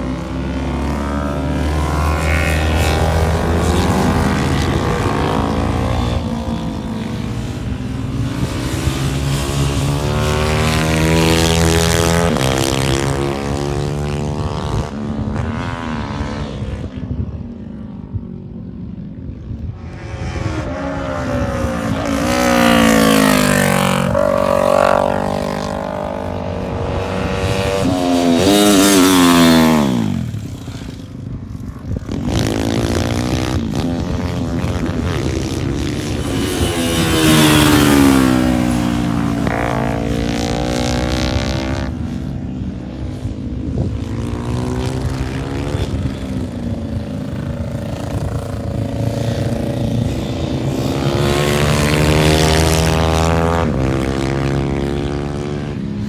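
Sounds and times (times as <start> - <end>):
motorcycles revving past: 0.0 - 56.0.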